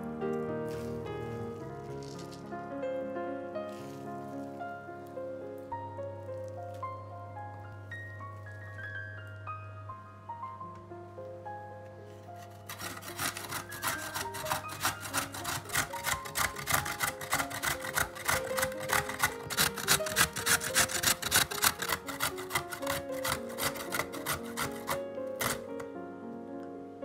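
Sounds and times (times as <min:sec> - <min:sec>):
piano music: 0:00.0 - 0:27.0
carrot being grated: 0:12.4 - 0:25.9.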